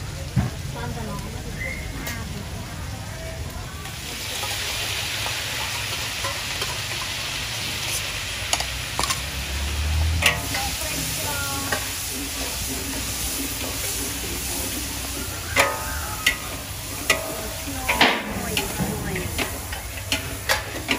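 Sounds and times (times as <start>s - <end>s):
food sizzling in a wok: 0.0s - 20.9s
metal spatula scraping a wok: 4.3s - 20.9s.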